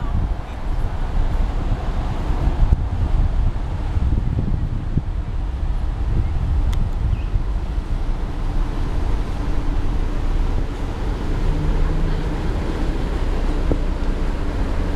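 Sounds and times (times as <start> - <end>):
barge engine drone: 0.0 - 14.9
wind buffeting microphone: 0.0 - 14.9.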